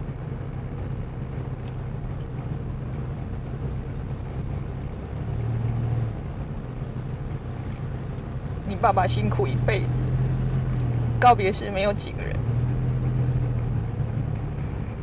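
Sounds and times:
car engine and road hum: 0.0s - 15.0s.

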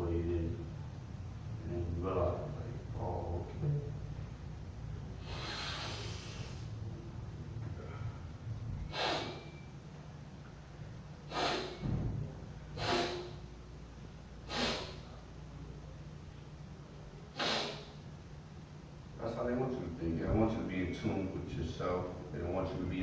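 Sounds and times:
man breathing sharply: 5.2s - 6.8s, 7.7s - 9.7s, 11.2s - 11.9s, 12.7s - 13.5s, 14.4s - 15.2s, 17.3s - 18.0s.

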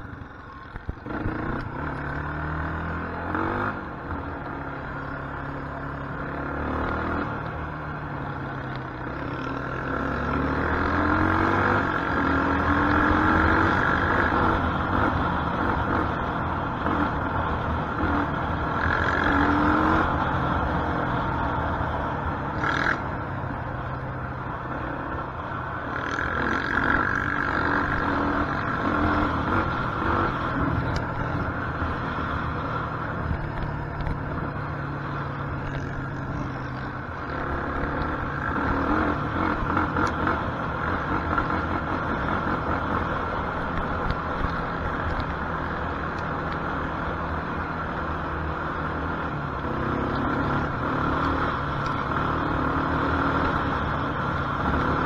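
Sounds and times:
quad bike engine running: 0.0s - 23.2s
wind: 0.0s - 55.0s.

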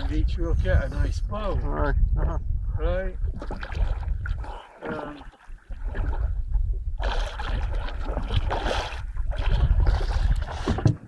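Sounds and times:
water gurgling against boat: 0.0s - 11.0s.

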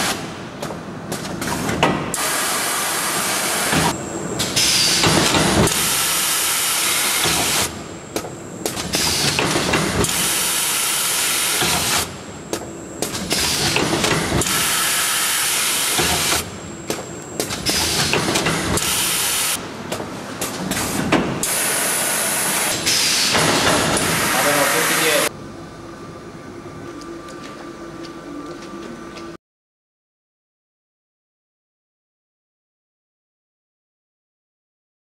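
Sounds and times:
packing machine air hissing: 2.2s - 7.8s, 8.8s - 12.2s, 13.1s - 16.6s, 17.4s - 19.6s, 20.6s - 25.3s.

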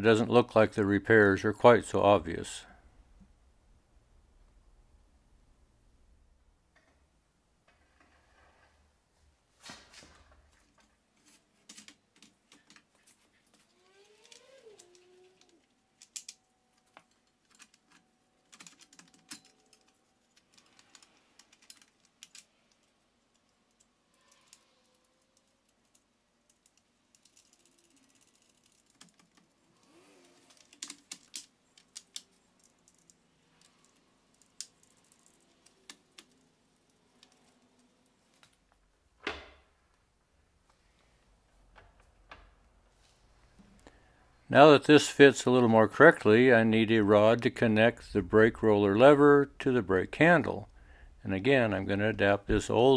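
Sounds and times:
faint squeaks: 13.6s - 15.7s.

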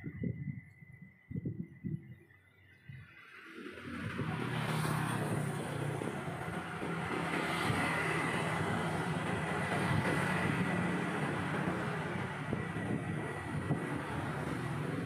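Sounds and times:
road noise: 2.7s - 15.0s
motorcycles passing: 3.4s - 15.0s.

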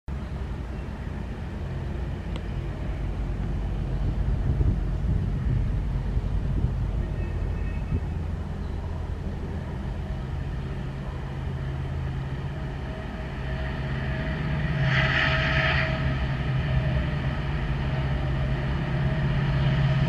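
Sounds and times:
diesel locomotive engine drone: 0.1s - 20.0s
train horn blast: 11.1s - 20.0s.

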